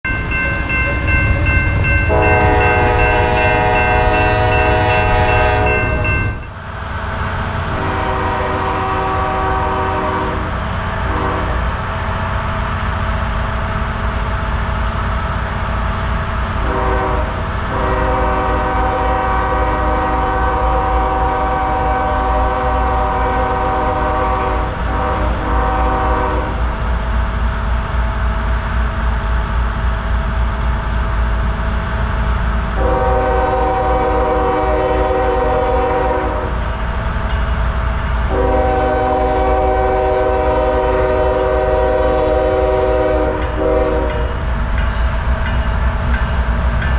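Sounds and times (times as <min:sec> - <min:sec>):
low rumble of train: 0:00.0 - 0:46.9
locomotive air horn blasts: 0:01.9 - 0:06.4, 0:07.8 - 0:11.7, 0:16.6 - 0:26.6, 0:32.8 - 0:36.6, 0:38.3 - 0:44.3.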